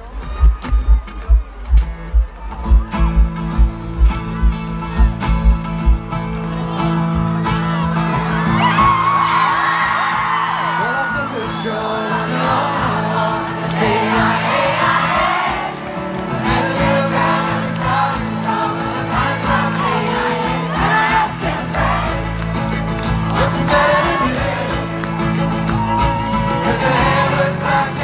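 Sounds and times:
deep bass: 0:00.0 - 0:07.4
crowd noise: 0:00.0 - 0:28.0
live band with guitars and fiddle: 0:00.0 - 0:28.0
person singing: 0:23.2 - 0:24.9, 0:26.0 - 0:28.0.

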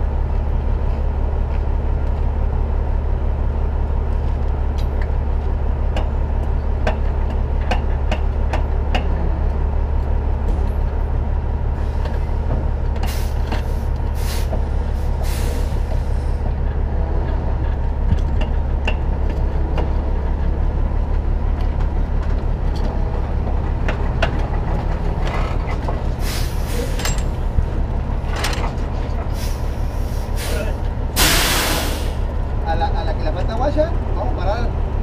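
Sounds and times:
diesel engine idling: 0:00.0 - 0:35.0
hissing air bursts: 0:31.2 - 0:32.2.

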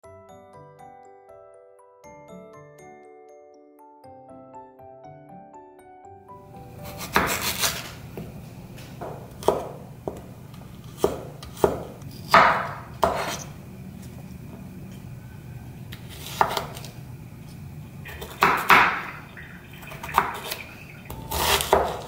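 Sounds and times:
knife chopping on wooden board: 0:06.8 - 0:08.3, 0:09.0 - 0:13.5, 0:15.9 - 0:16.9, 0:18.1 - 0:19.1, 0:21.3 - 0:22.0.

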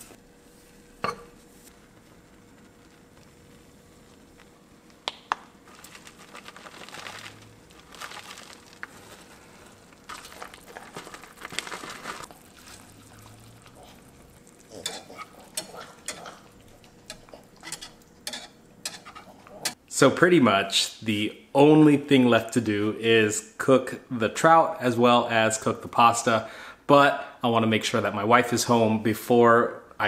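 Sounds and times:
utensil stirring sauce in skillet: 0:08.5 - 0:19.8.

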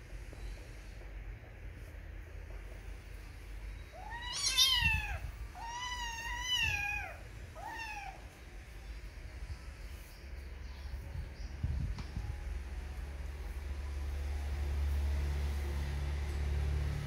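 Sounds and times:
cat meowing: 0:03.9 - 0:08.4.

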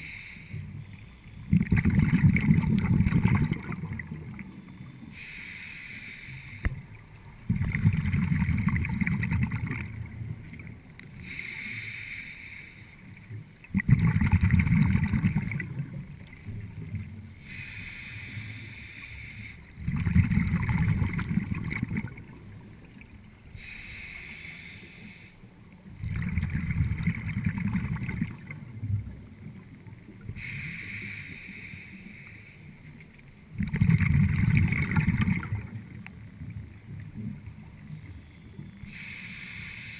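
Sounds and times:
regulator inhale hiss: 0:00.0 - 0:01.4, 0:05.0 - 0:07.0, 0:11.2 - 0:13.6, 0:17.3 - 0:19.8, 0:23.5 - 0:25.5, 0:30.3 - 0:33.0, 0:38.8 - 0:39.9
exhaled bubbles rushing: 0:01.5 - 0:04.4, 0:07.4 - 0:10.3, 0:13.7 - 0:16.0, 0:19.8 - 0:22.4, 0:26.0 - 0:28.6, 0:33.6 - 0:35.8.

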